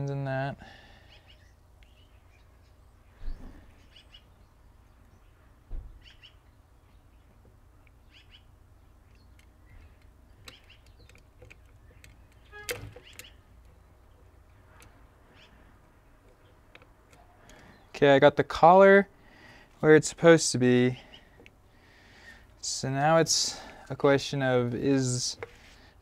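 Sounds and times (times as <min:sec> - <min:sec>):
faint bird chirps: 0:00.9 - 0:18.0
metal parts knocking and clinking: 0:09.1 - 0:13.8.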